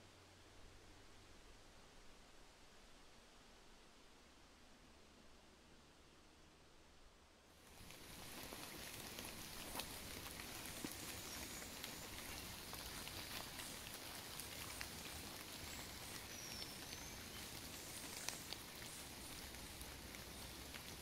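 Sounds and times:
light rain pattering on leaves: 7.4s - 21.0s.

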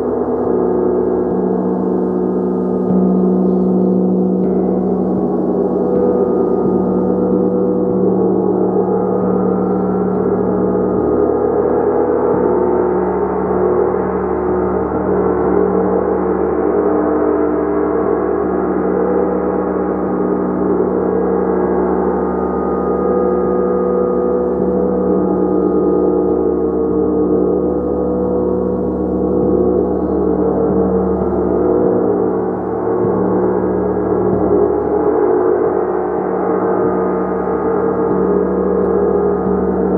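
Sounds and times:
gong ringing: 0.0s - 10.6s.

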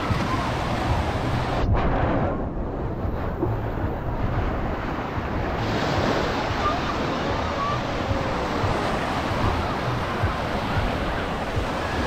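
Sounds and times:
wind noise on microphone: 0.0s - 12.0s
small waves breaking on sand: 4.2s - 12.0s.

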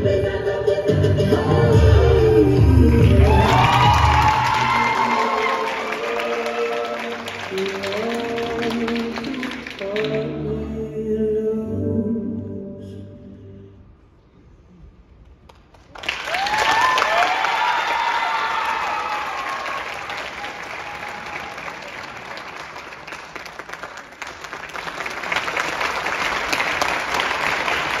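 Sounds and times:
dance music: 0.0s - 10.8s
cheers and whoops: 3.1s - 6.2s, 16.1s - 21.9s
audience applause: 3.1s - 10.1s, 15.5s - 28.0s.

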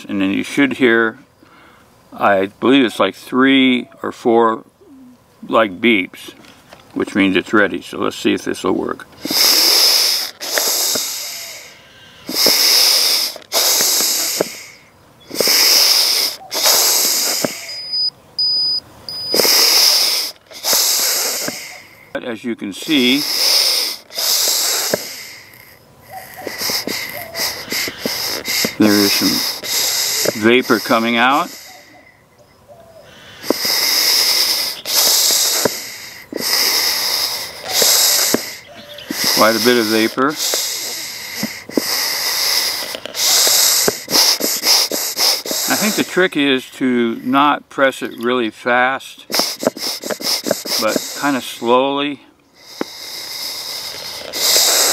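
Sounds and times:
smoker bellows hissing: 5.2s - 32.2s, 33.0s - 54.9s
short high electronic beeps: 17.6s - 19.4s.

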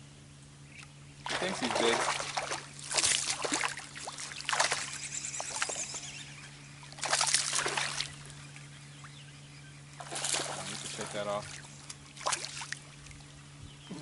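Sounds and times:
fish thrashing and splashing water: 1.2s - 6.1s, 6.9s - 8.3s, 10.0s - 12.9s.

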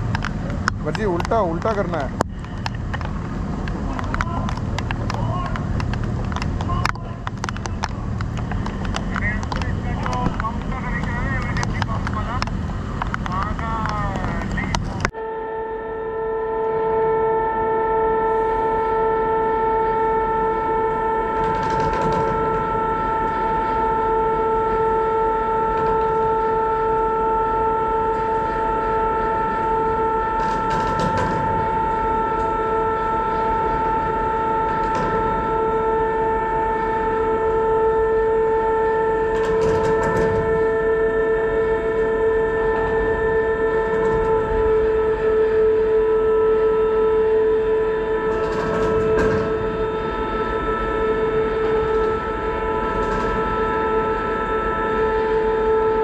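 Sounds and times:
winch whining: 15.8s - 56.0s.

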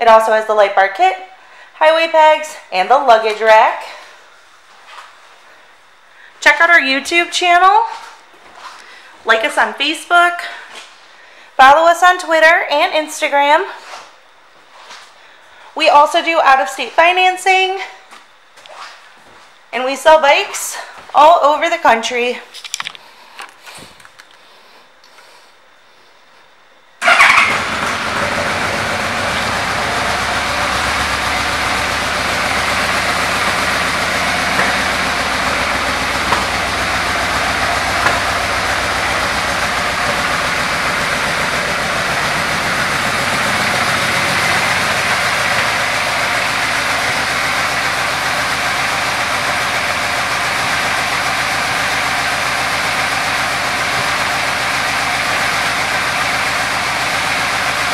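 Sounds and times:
motorcycle engine starting and idling: 27.0s - 57.9s.

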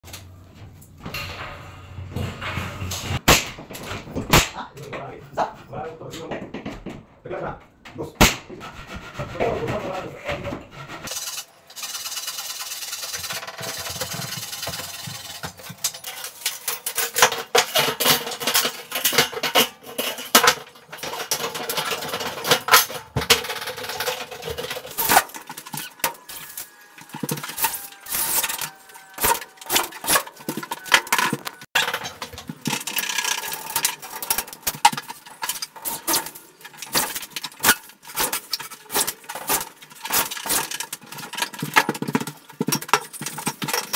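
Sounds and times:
steel framing track clinking: 0.1s - 3.2s, 11.1s - 41.7s.

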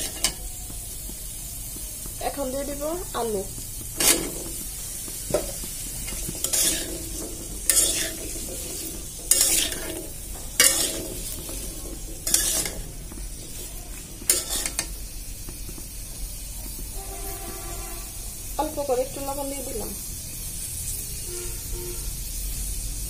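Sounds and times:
food sizzling in oil: 0.0s - 23.0s
metal spatula scraping pan: 3.9s - 15.0s.

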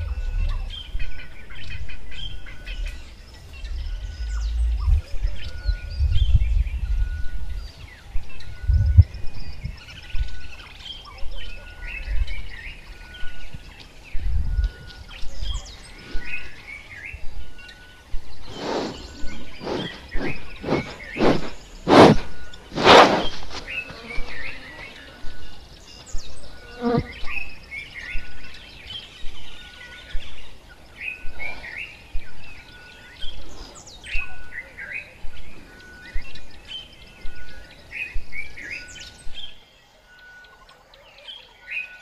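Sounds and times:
wild birds calling and chirping: 0.0s - 42.0s
gusty wind on microphone: 3.5s - 10.4s, 18.1s - 24.5s
buffalo sniffing loudly: 18.5s - 23.7s.

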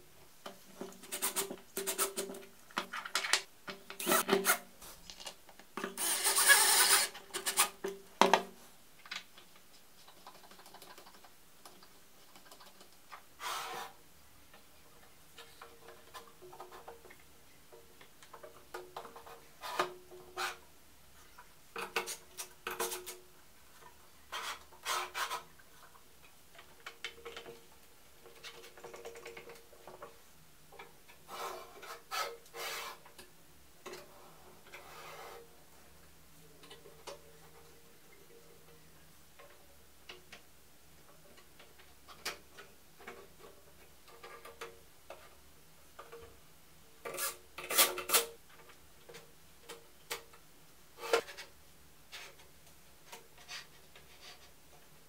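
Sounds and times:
plastic parts rubbing and clicking: 0.8s - 7.8s.

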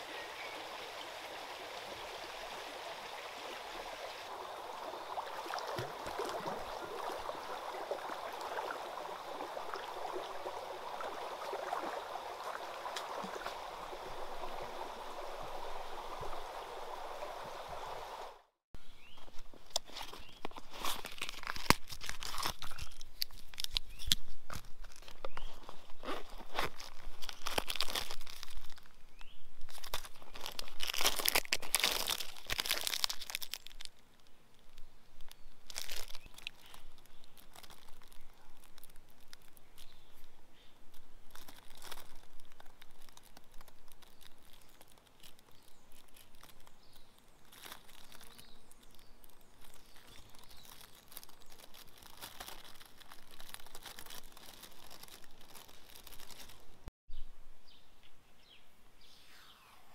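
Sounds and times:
foil blanket crinkling: 19.8s - 28.9s, 29.7s - 34.0s, 35.7s - 40.3s, 41.3s - 56.7s.

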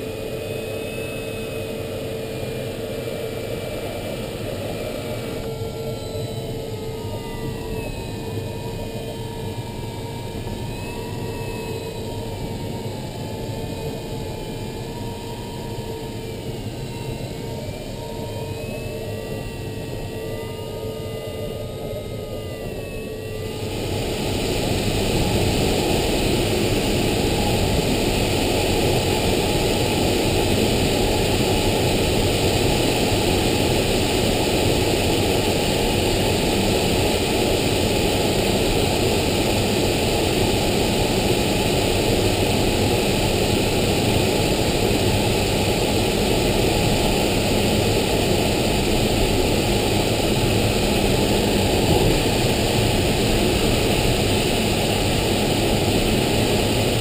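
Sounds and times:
air rushing past glider canopy: 23.5s - 57.0s.

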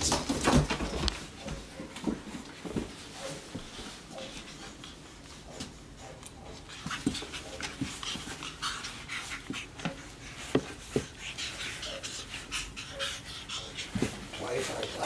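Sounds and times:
monkeys scuffling and rustling: 6.6s - 15.0s.

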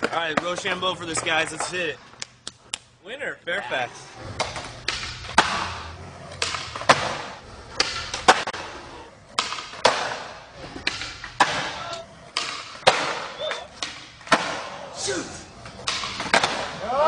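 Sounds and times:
skateboard wheels rolling on concrete: 0.0s - 2.7s, 3.4s - 17.0s
skateboard popping and landing: 4.2s - 14.9s, 15.6s - 17.0s.

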